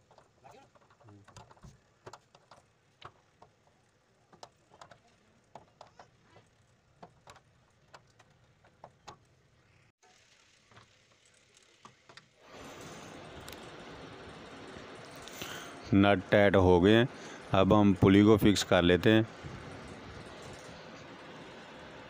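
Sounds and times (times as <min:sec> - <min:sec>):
steady hiss: 0:12.4 - 0:22.0.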